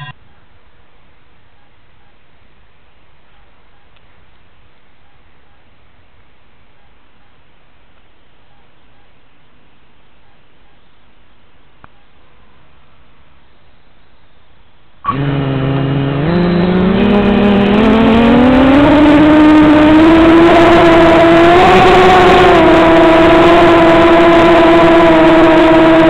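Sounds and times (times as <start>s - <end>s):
motor whine rising in pitch: 15.1s - 26.0s.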